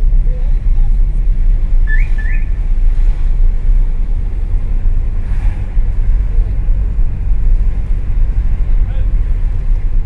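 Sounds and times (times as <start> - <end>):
car driving rumble: 0.0 - 10.0.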